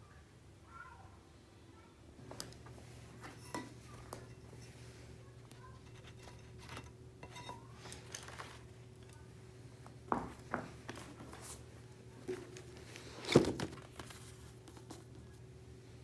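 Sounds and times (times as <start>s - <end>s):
book thud set down: 13.2s - 14.1s.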